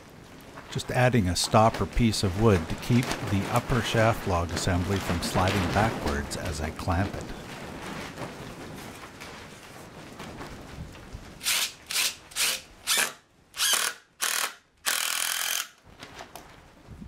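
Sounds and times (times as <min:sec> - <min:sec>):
cordless drill driving screw into wood: 0:11.4 - 0:15.8.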